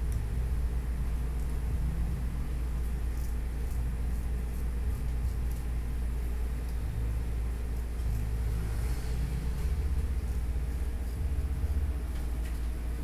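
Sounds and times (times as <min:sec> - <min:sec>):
low rumble: 0:00.0 - 0:03.1, 0:06.8 - 0:12.3
razor scraping stubble: 0:02.7 - 0:12.7.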